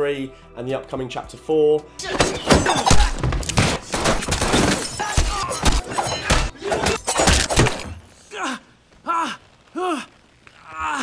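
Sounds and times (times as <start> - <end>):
glass shattering: 2.0 - 8.0.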